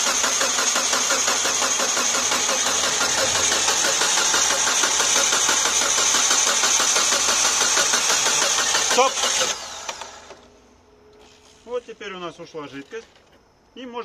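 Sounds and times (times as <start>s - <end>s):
car engine cranking on starter: 0.0s - 10.5s.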